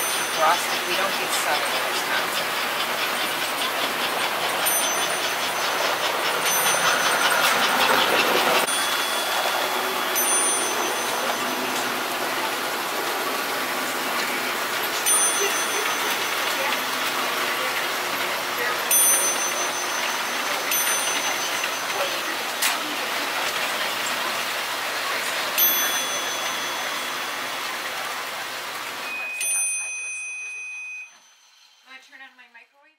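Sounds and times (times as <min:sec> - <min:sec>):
toy train motor whir: 0:00.0 - 0:28.9
wheels clicking over rails: 0:00.0 - 0:30.0.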